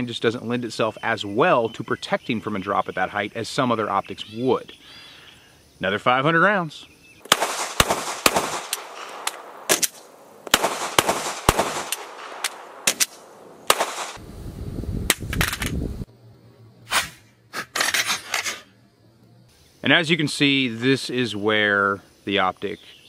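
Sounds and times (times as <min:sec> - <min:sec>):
pistol gunshots: 0:07.2 - 0:14.2
pistol dropped onto concrete: 0:15.2 - 0:15.8.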